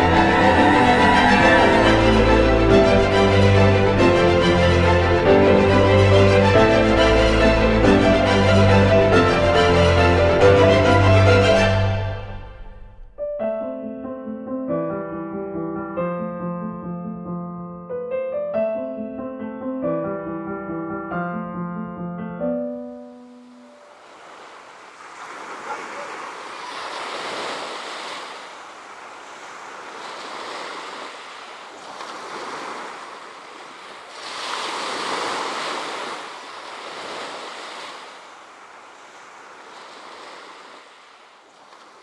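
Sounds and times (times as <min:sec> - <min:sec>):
sea waves washing ashore: 0:00.0 - 0:12.4, 0:23.0 - 0:42.0.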